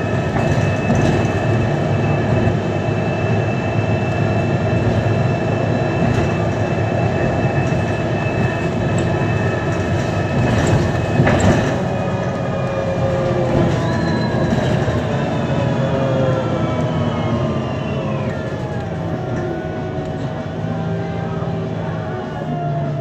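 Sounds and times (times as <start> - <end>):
bus engine drone: 0.0 - 23.0
whine sliding down in pitch: 0.0 - 23.0.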